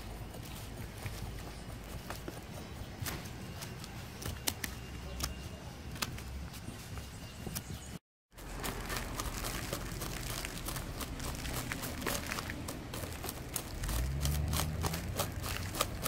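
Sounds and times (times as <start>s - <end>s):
metal hook scratching through soil: 8.4s - 16.0s.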